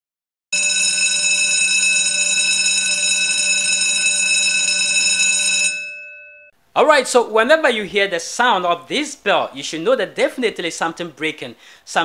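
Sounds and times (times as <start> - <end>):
bell ringing: 0.6 - 6.5.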